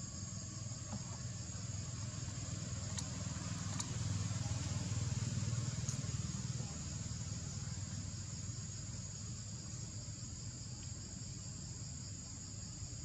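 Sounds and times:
insect chorus buzzing: 0:00.0 - 0:13.0
faint ticks: 0:02.8 - 0:04.0, 0:10.7 - 0:11.0.

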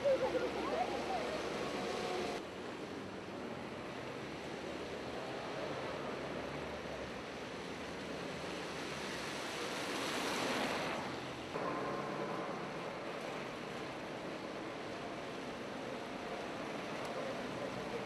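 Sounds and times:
rain falling: 0:00.0 - 0:02.4, 0:07.6 - 0:18.0
tyres on wet street: 0:00.0 - 0:18.0.

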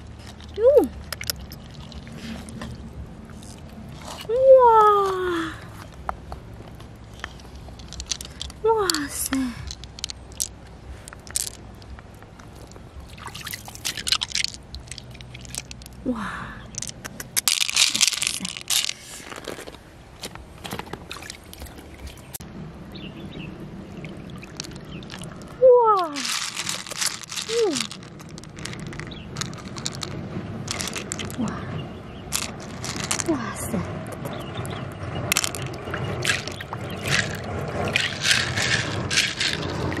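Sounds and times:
pearls clicking against shell: 0:00.3 - 0:02.2, 0:07.2 - 0:12.8, 0:13.4 - 0:16.0, 0:16.6 - 0:19.0, 0:26.1 - 0:31.4, 0:32.3 - 0:33.3, 0:34.0 - 0:40.0.

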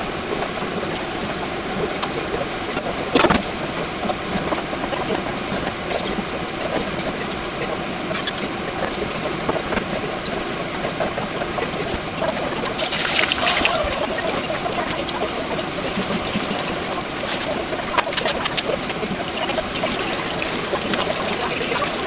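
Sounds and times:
hot oil deep-frying: 0:00.0 - 0:22.0.

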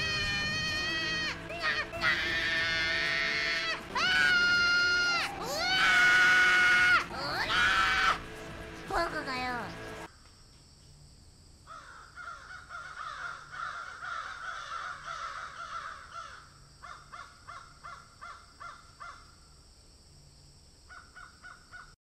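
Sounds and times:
birds calling: 0:00.0 - 0:10.1.

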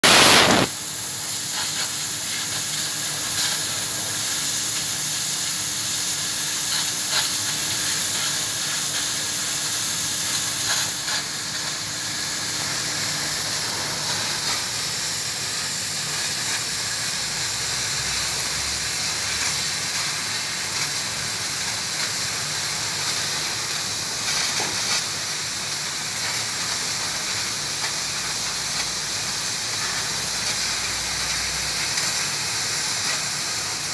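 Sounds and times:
laser cutter gas jet hiss: 0:00.0 - 0:33.9.

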